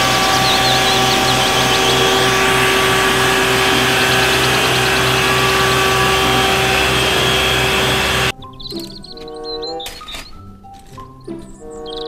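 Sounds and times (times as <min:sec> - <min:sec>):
diesel truck engine running: 0:00.0 - 0:08.3
steady whine: 0:00.0 - 0:08.3
water jet hissing: 0:00.0 - 0:08.3.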